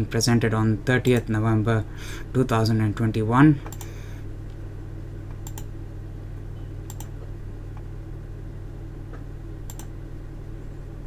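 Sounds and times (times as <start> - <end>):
low electrical hum: 0.0 - 11.0
computer keyboard clicks: 5.4 - 5.7, 6.9 - 7.1, 9.7 - 9.9.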